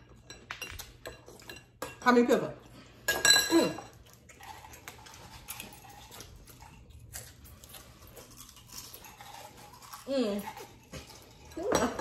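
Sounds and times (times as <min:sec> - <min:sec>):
quiet chewing: 0:03.9 - 0:11.6.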